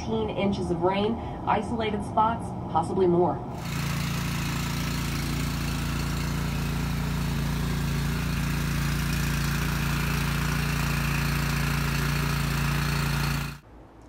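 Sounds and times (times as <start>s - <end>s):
small gasoline engine running: 3.6s - 13.6s.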